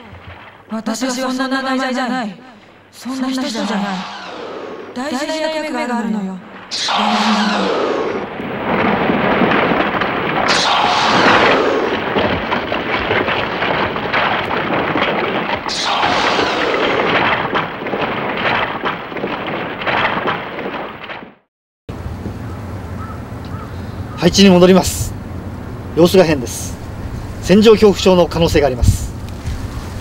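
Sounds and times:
explosions with rumble: 0:03.5 - 0:05.2, 0:06.4 - 0:21.4.

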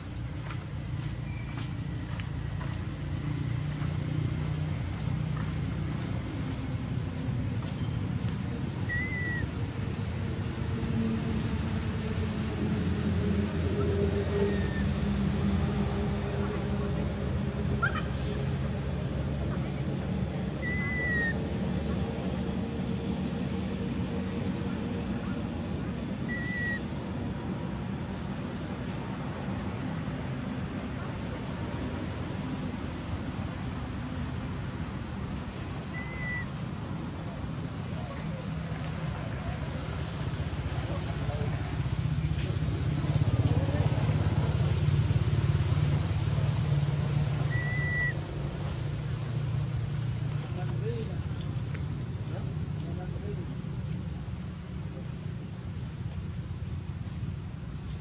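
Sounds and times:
engine rumbling: 0:00.0 - 0:58.0
infant monkey coo calls: 0:08.8 - 0:09.6, 0:13.7 - 0:15.0, 0:17.7 - 0:18.5, 0:19.4 - 0:21.6, 0:26.2 - 0:26.9, 0:35.8 - 0:36.6, 0:47.4 - 0:48.2.

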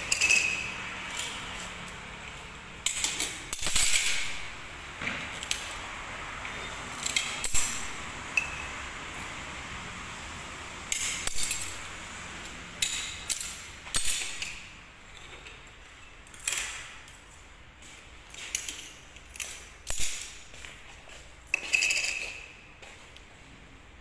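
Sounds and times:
glass pieces clinking and scraping: 0:00.0 - 0:01.4, 0:21.5 - 0:22.5.

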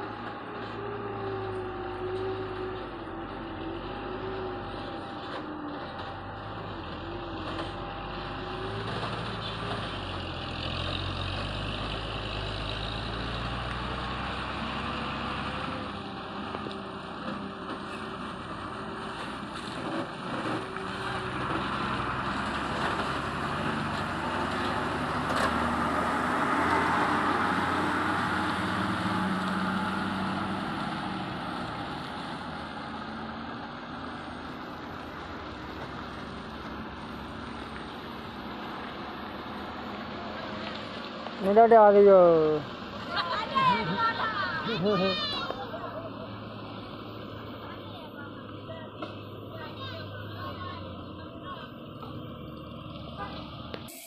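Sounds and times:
road noise: 0:00.0 - 0:54.0.

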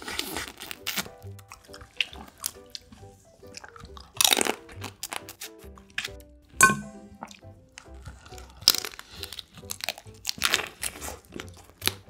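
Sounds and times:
chewing crab shell crunching: 0:00.0 - 0:06.4, 0:07.3 - 0:12.0.

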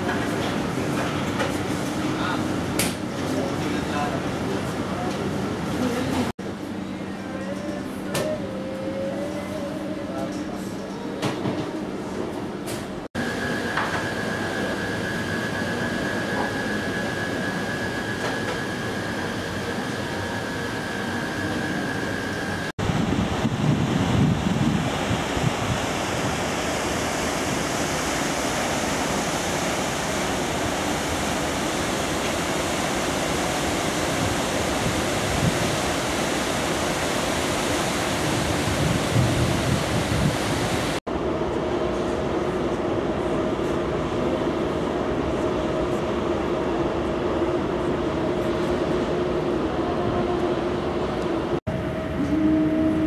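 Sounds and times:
sea wash alongside ship: 0:00.0 - 0:53.0
wind buffeting microphone: 0:22.8 - 0:26.6, 0:38.2 - 0:41.0.

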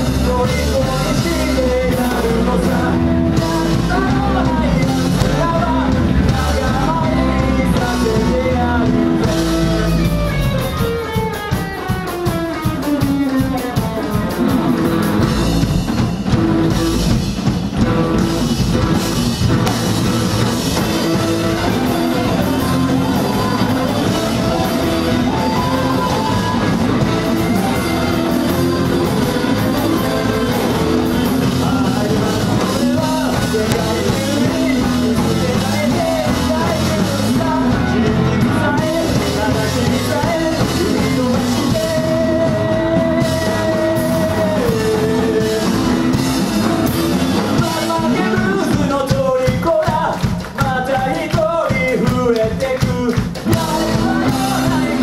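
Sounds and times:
lead singer singing: 0:00.0 - 0:17.2, 0:17.8 - 0:55.0
live rock band playing: 0:00.0 - 0:55.0.

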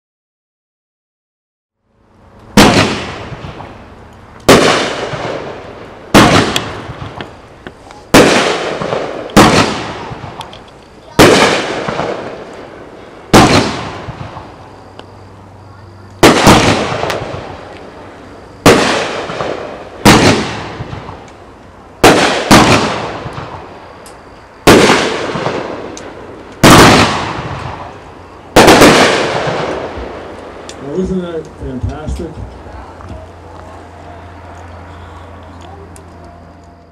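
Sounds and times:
firework cake bangs: 0:02.6 - 0:03.7, 0:04.5 - 0:07.3, 0:08.1 - 0:10.5, 0:11.1 - 0:12.5, 0:13.3 - 0:14.5, 0:16.2 - 0:17.7, 0:18.6 - 0:21.2, 0:22.0 - 0:23.7, 0:24.6 - 0:25.8, 0:26.6 - 0:27.9, 0:28.6 - 0:30.2.

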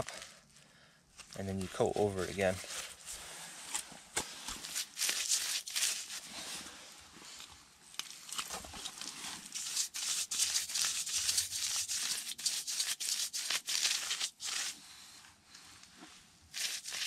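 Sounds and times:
stiff brush scrubbing: 0:01.4 - 0:03.4, 0:04.5 - 0:06.6, 0:08.9 - 0:14.8, 0:16.5 - 0:17.0.

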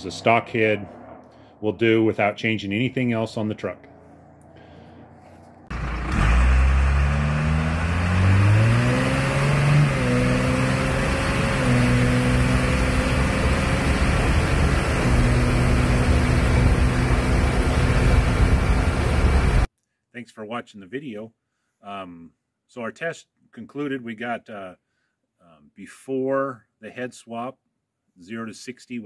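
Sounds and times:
diesel engine accelerating: 0:00.0 - 0:19.7
wind and road noise: 0:00.0 - 0:19.7.

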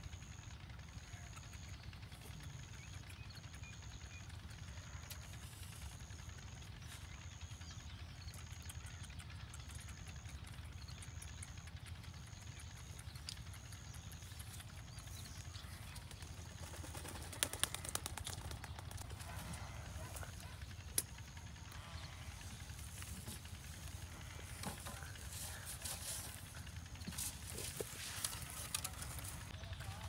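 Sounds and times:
steady low rumble: 0:01.1 - 0:30.0
sharp clicks: 0:20.8 - 0:21.8.

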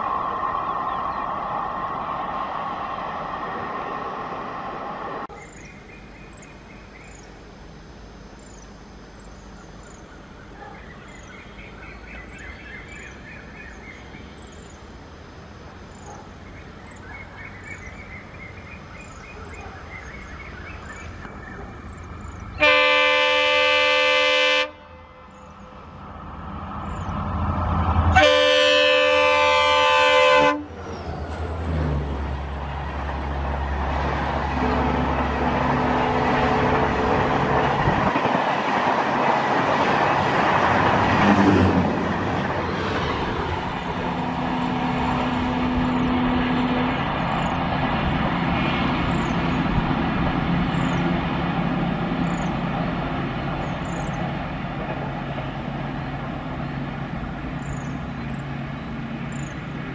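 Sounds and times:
locomotive horn blasts: 0:22.6 - 0:25.3, 0:28.1 - 0:30.8, 0:34.5 - 0:38.0.

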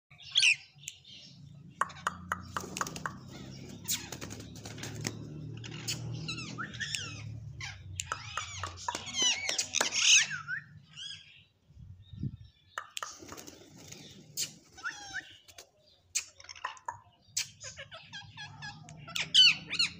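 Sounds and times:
parakeets chattering and squawking: 0:00.2 - 0:11.6, 0:12.4 - 0:19.9
sharp clicks: 0:08.0 - 0:09.9.

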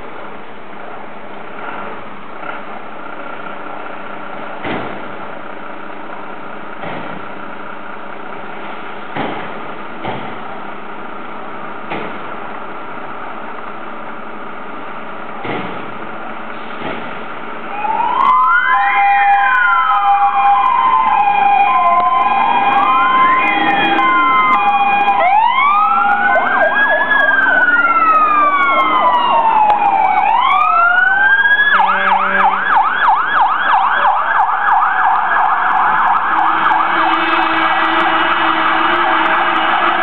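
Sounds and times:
electronic sirens wailing: 0:17.7 - 0:40.0
siren fast yelp: 0:17.7 - 0:40.0.

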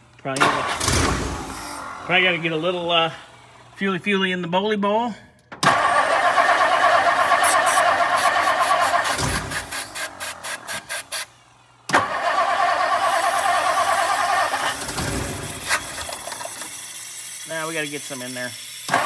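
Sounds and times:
starter motor cranking engine: 0:00.2 - 0:03.4, 0:05.6 - 0:19.0.

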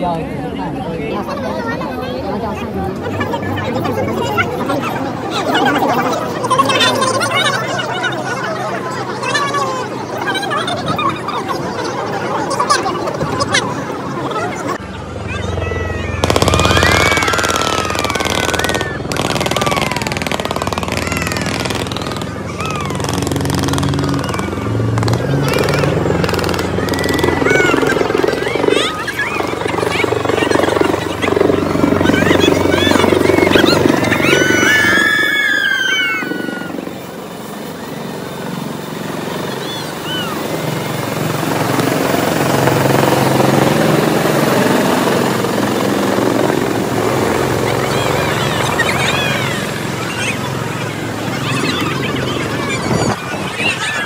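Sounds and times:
helicopter rotor chopping: 0:00.0 - 0:54.0
voices calling out: 0:00.0 - 0:54.0.

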